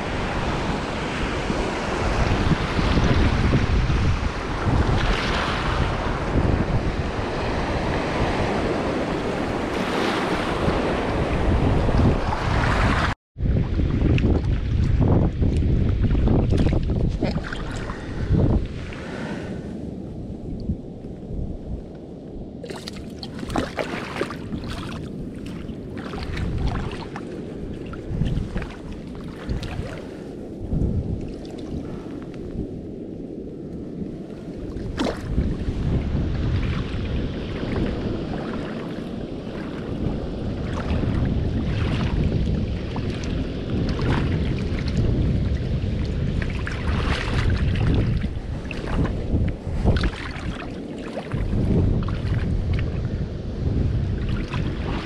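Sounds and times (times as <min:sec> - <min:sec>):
wind buffeting microphone: 0:00.0 - 0:55.0
boots splashing through water: 0:22.6 - 0:27.3, 0:34.9 - 0:35.4, 0:46.4 - 0:49.2.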